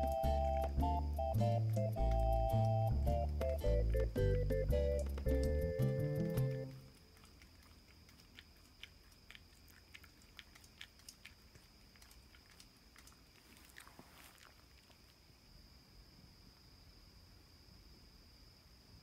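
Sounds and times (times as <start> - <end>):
background music: 0.0 - 6.8
dog licking and nibbling: 1.8 - 15.2.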